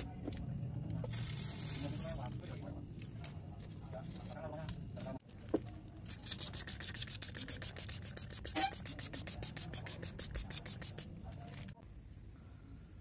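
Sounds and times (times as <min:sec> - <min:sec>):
spray bottle hissing spurts: 0:06.1 - 0:11.0.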